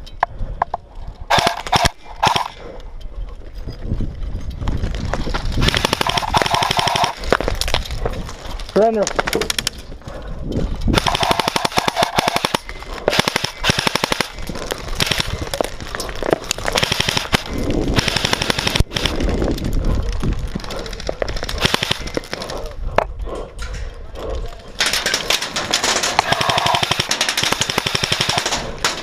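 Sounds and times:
airsoft rifles full-auto bursts: 1.3 - 2.6, 5.6 - 7.2, 10.9 - 15.4, 16.7 - 19.1, 21.4 - 22.2, 25.8 - 28.8.

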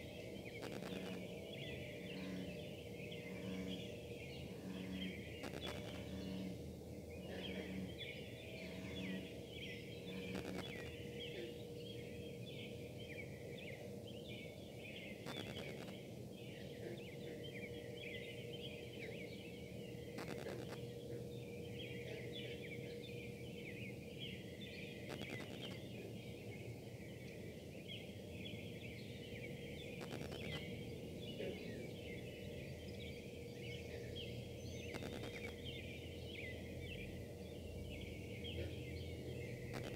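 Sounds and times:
steady buzzing hum: 0.0 - 39.9
interference clicks: 0.5 - 1.3, 5.4 - 6.4, 10.2 - 11.0, 15.2 - 16.0, 20.1 - 21.0, 25.0 - 25.8, 29.9 - 30.7, 34.8 - 35.6, 39.7 - 39.9.

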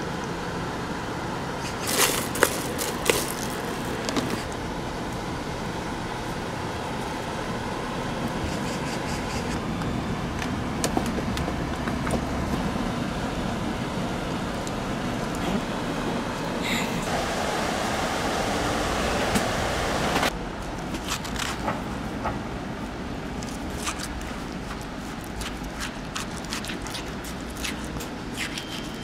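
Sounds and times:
street and traffic noise: 0.0 - 29.0
spoon clicks and rustles: 23.4 - 29.0.

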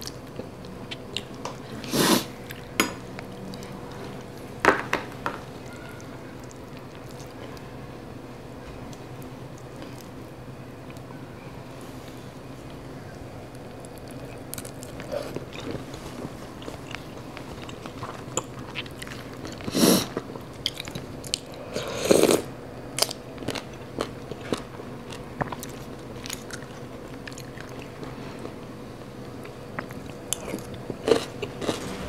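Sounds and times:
chewing and crunching salad: 0.0 - 4.5, 5.4 - 7.8, 13.5 - 32.0.

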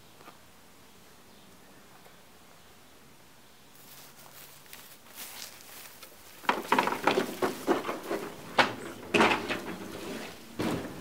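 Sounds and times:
lawnmower rattling and clunking: 6.4 - 11.0
loud knocks: 6.4 - 11.0.

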